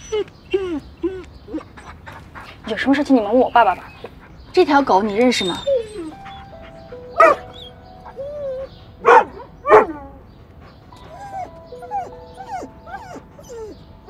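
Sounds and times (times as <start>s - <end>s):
dog whining: 0.0s - 2.6s, 5.1s - 13.8s
dog barking: 7.2s - 7.4s, 9.0s - 10.0s.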